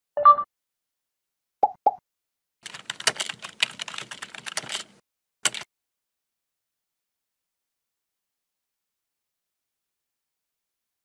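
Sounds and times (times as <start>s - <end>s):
keyboard key clicks: 2.7s - 5.7s.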